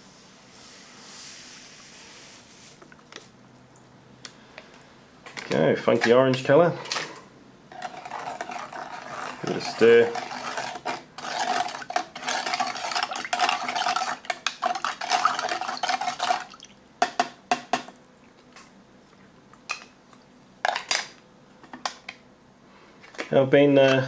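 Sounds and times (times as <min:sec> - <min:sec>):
spoon stirring in metal cup: 0:07.7 - 0:16.6.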